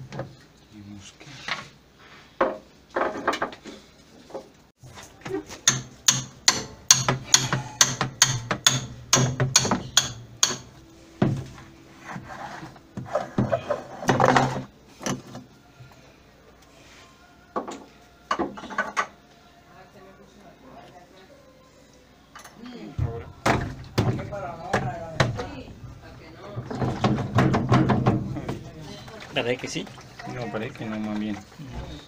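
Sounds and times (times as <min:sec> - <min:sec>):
hammer knocking on metal: 0:05.6 - 0:11.4
rough scraping noise: 0:11.7 - 0:14.7.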